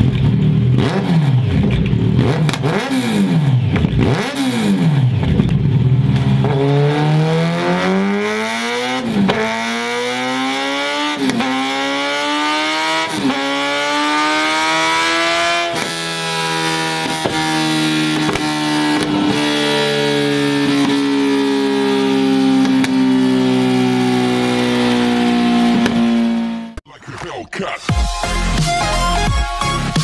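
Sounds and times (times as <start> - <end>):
exhaust cracks: 0.0 - 6.7, 15.6 - 27.6
motorcycle engine revving: 0.0 - 26.8.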